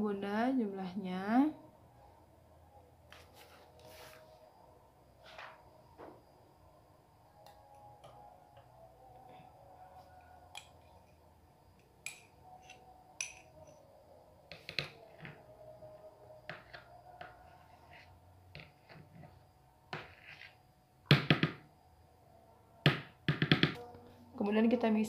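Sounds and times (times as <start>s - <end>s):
spoon knocking plastic bowl: 22.9s - 23.8s.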